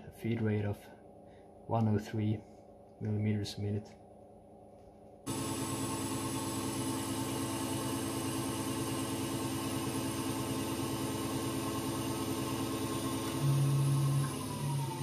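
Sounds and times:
lathe machine hum: 5.3s - 15.0s.

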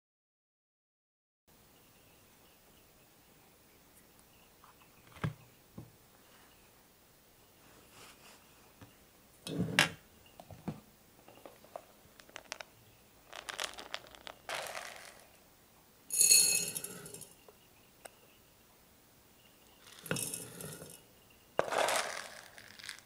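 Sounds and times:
plastic tub and scoop rustling: 11.3s - 12.7s, 13.3s - 15.4s, 19.8s - 21.0s, 21.6s - 23.0s
pellets clattering into glass jar: 11.4s - 12.7s, 13.3s - 15.4s, 16.1s - 17.4s, 19.8s - 21.0s, 21.6s - 23.0s
scoop rattling through granules: 11.6s - 12.7s, 13.3s - 15.4s, 16.1s - 17.3s, 19.8s - 21.0s, 21.6s - 23.0s.

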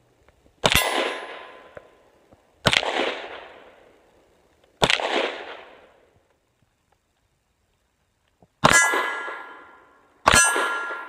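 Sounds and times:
pistol shots echoing: 0.6s - 2.0s, 2.6s - 3.9s, 4.8s - 6.0s, 8.6s - 11.0s.

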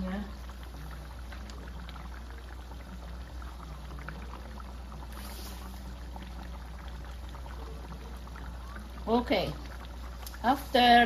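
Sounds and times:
low steady hum: 0.0s - 11.0s
stew bubbling and popping: 0.0s - 11.0s.

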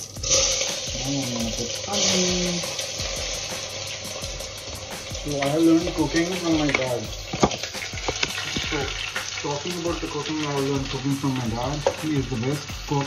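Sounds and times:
onions sizzling in hot oil: 0.0s - 13.0s
person speaking: 0.9s - 2.7s, 5.2s - 7.2s
sharp knock: 7.3s - 8.7s.

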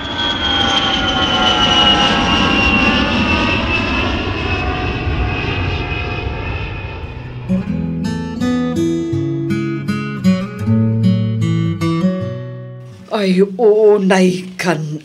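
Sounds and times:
airplane engine roar: 0.0s - 8.0s.

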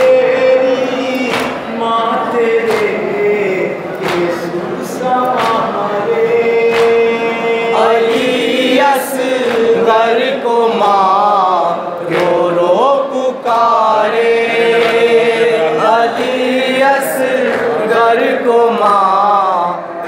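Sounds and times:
male voices chanting a lament: 0.0s - 20.0s.

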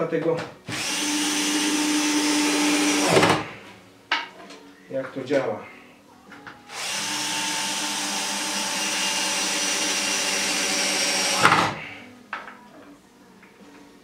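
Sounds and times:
power drill into wood: 0.7s - 3.5s, 6.7s - 11.8s.

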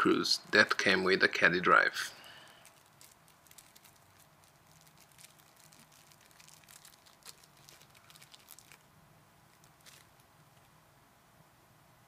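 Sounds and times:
plastic bag crinkling: 2.2s - 10.7s.

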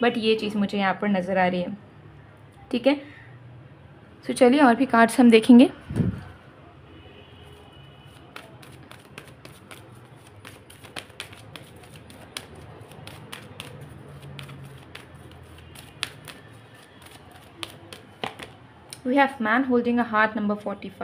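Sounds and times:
cards being shuffled: 8.1s - 18.6s.

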